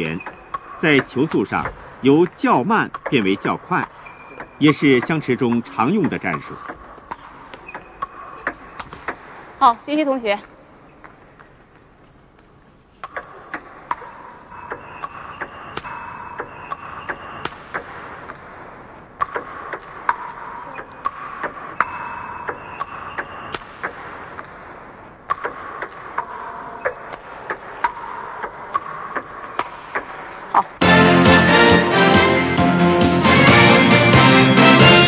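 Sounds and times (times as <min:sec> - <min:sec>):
table tennis ball clicking: 0:12.3 - 0:18.5, 0:19.1 - 0:30.8.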